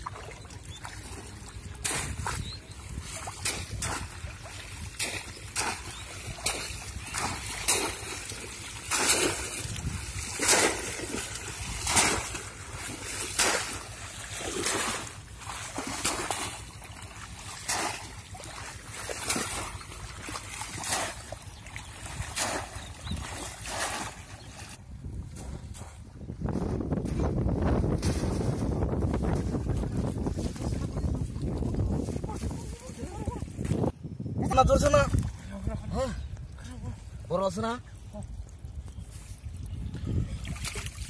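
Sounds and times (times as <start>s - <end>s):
legs wading through water: 0.0s - 24.8s, 37.9s - 41.0s
shallow water splashing: 0.0s - 24.8s, 37.8s - 41.0s.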